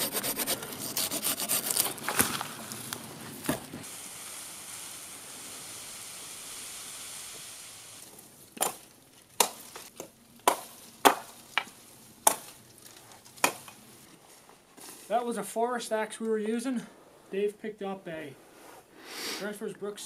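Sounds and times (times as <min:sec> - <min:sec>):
steady hiss: 0:02.4 - 0:20.0
axe chopping wood: 0:08.6 - 0:12.6, 0:13.4 - 0:13.8.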